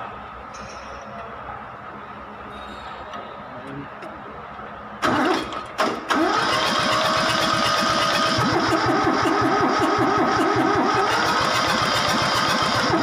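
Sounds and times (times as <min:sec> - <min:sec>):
diesel engine cranking starter whine: 0:05.0 - 0:13.0.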